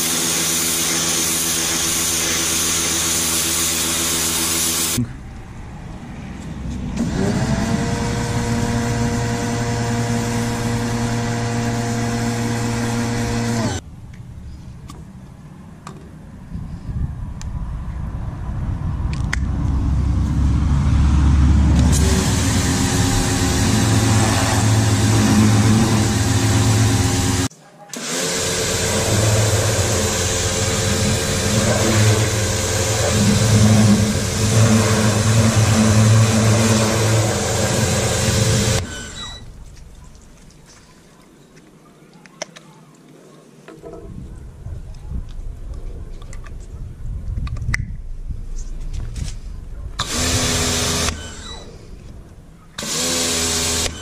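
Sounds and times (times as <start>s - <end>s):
high-pressure water jet hissing: 0.0s - 5.0s, 21.8s - 39.4s, 50.0s - 51.9s, 52.8s - 54.0s
pressure washer motor humming: 0.0s - 5.0s, 7.0s - 13.8s, 21.6s - 39.7s, 50.0s - 52.0s, 52.8s - 54.0s.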